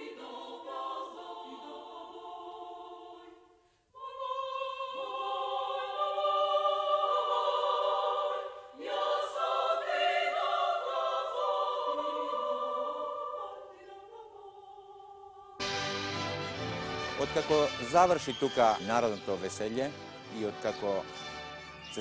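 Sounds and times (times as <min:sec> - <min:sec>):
women's choir singing: 0:00.0 - 0:15.6.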